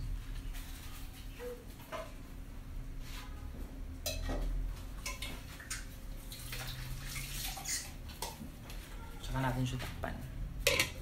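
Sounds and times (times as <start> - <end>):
cookware clinking: 4.0 - 5.9, 10.7 - 11.0.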